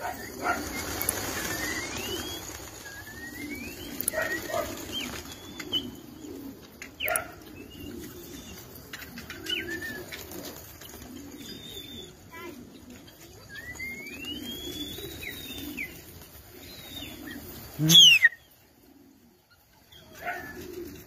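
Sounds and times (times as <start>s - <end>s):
pigeon wings flapping: 0.0s - 17.9s, 20.1s - 21.0s
pigeons cooing: 0.0s - 21.0s
short rising whistles: 0.6s - 4.0s.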